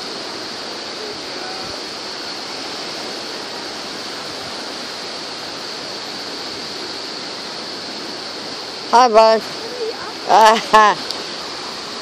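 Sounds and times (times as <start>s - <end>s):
beach rushing noise: 0.0s - 12.0s
high-pitched hiss: 0.0s - 12.0s.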